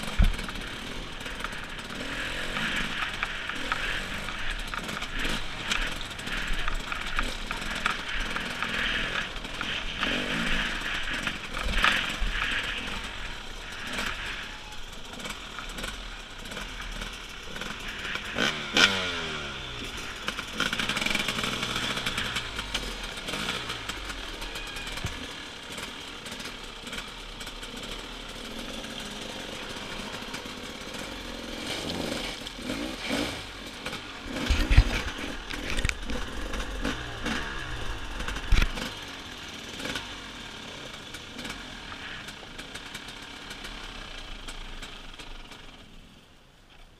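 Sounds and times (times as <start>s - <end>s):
motorcycle engine revving: 0.0s - 46.2s
wheels knocking on stones: 34.3s - 39.0s.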